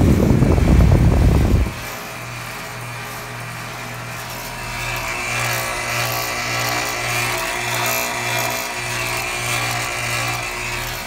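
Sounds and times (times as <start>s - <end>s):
low pulsing hum: 0.0s - 7.4s
condenser fan air rushing: 0.0s - 11.0s.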